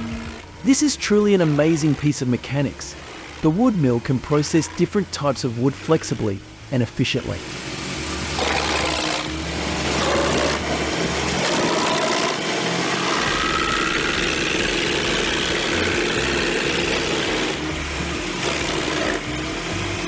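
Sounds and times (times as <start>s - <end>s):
wood chipper running: 0.0s - 6.3s, 7.4s - 20.0s
machine whine: 0.0s - 6.6s, 7.3s - 20.0s
tractor engine: 7.3s - 20.0s.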